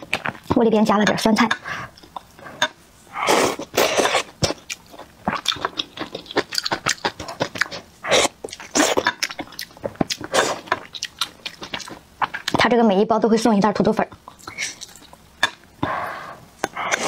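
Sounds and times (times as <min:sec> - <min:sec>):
wet chewing with clicks: 0:03.6 - 0:12.6, 0:14.0 - 0:15.9
breathy slurping: 0:15.8 - 0:17.0.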